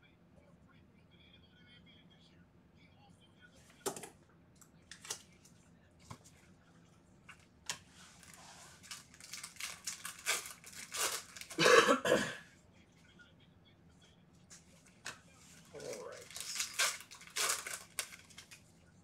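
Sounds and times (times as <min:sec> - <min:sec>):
foil wrapper crinkling: 0:08.2 - 0:11.6, 0:15.6 - 0:18.7
foil wrapper tearing open: 0:08.2 - 0:11.6, 0:16.1 - 0:18.6.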